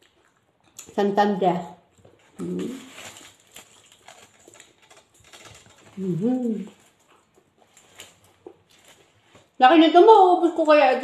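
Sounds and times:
wet chewing clicks: 0.0s - 2.6s, 3.4s - 9.6s
paper wrapper crinkling: 2.0s - 9.6s
person humming: 6.0s - 6.7s.

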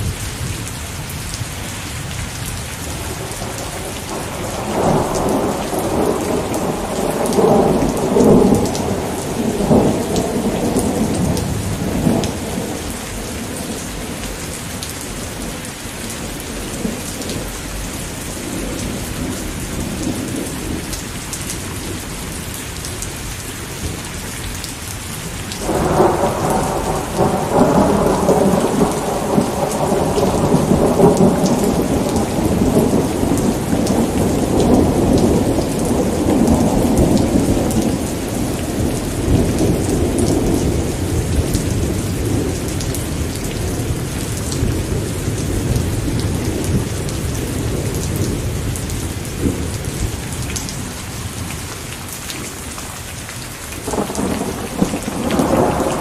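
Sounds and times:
steady rain: 0.0s - 56.0s
rolling thunder: 2.9s - 21.0s, 25.6s - 51.6s, 53.8s - 56.0s
thunderclap: 3.1s - 14.2s, 25.6s - 42.9s, 53.8s - 56.0s.

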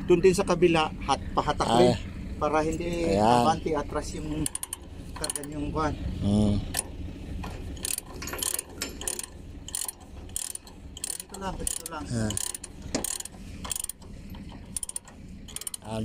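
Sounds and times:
ratchet pawl clicking: 4.3s - 5.6s, 7.6s - 16.0s.

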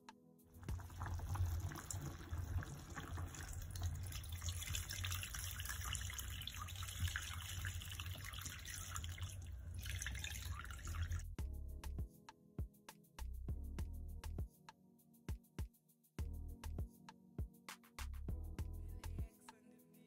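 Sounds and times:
juice pouring and splashing into pot: 0.6s - 11.3s.

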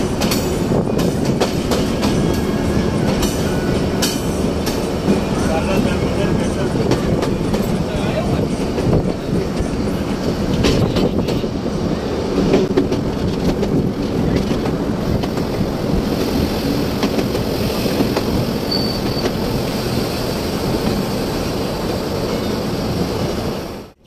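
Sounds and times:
train coach rumbling on rails: 0.0s - 24.0s
high squeal: 18.6s - 20.2s.

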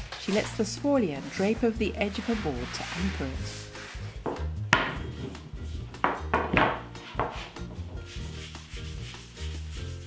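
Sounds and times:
rolling pin rolling over pasta: 0.0s - 9.5s
sharp wooden knocks: 6.0s - 7.3s.

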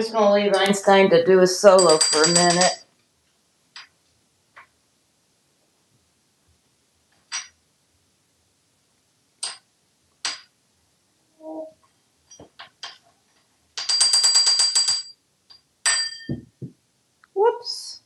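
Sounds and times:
metal spoon clinking on countertop: 13.8s - 16.5s.

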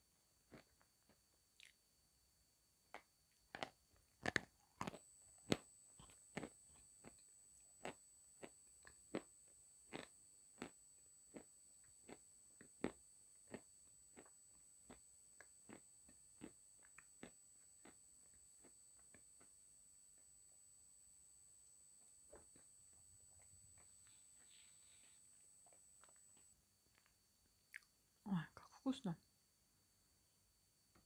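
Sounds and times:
crunchy chewing: 0.5s - 1.8s, 2.9s - 19.5s.

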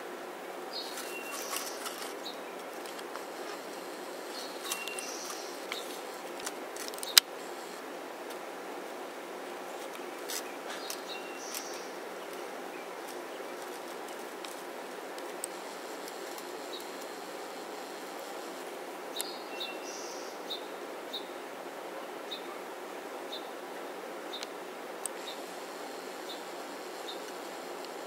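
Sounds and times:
outdoor hiss: 0.0s - 28.0s
songbirds chirping: 0.0s - 28.0s
sharp clicks: 4.3s - 7.3s.

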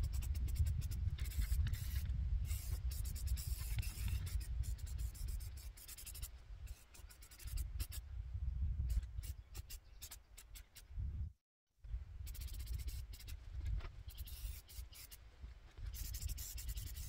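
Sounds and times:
spray paint can hissing: 0.0s - 8.0s, 8.9s - 10.8s, 12.2s - 13.4s, 14.1s - 15.2s, 15.8s - 17.0s.

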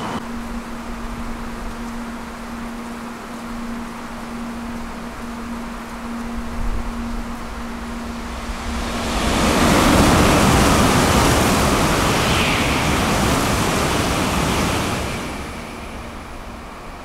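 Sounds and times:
high-speed train passing: 0.0s - 0.4s, 7.0s - 17.0s.

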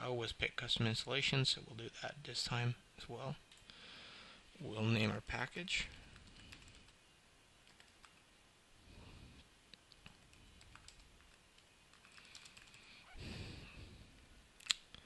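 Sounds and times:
typing on keyboard: 5.9s - 7.0s, 7.6s - 8.2s, 10.0s - 12.9s.

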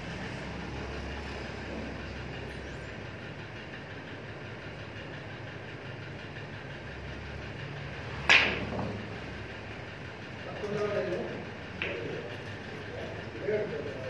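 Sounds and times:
background hum: 0.0s - 14.0s
snooker balls cracking: 8.3s - 9.1s.

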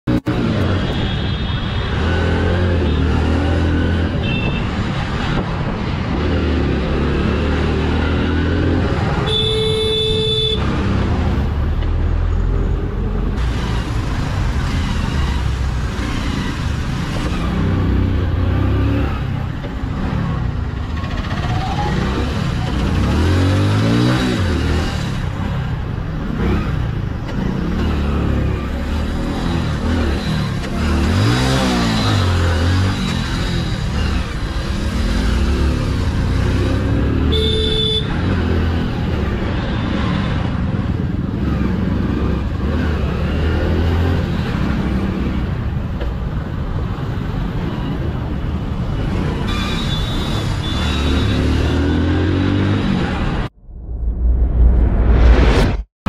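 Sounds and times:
road traffic noise: 0.0s - 55.9s
vehicle horn: 4.2s - 4.7s, 9.2s - 10.7s, 37.2s - 38.3s, 49.5s - 51.8s.

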